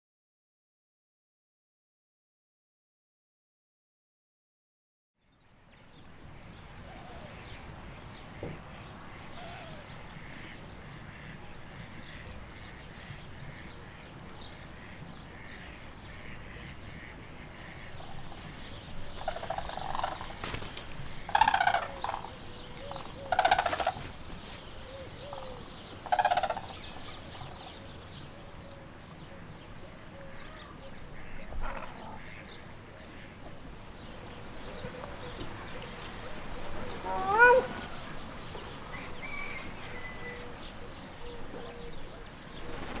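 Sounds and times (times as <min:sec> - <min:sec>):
cranes calling: 0:14.8 - 0:27.7, 0:30.2 - 0:33.4, 0:34.7 - 0:38.3.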